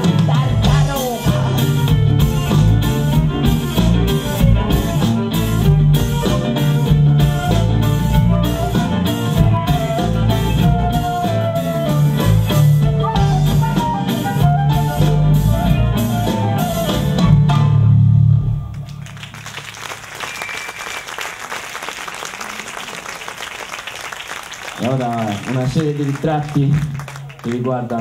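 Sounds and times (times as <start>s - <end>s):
live band playing: 0.0s - 27.6s
audience applauding: 18.7s - 28.0s.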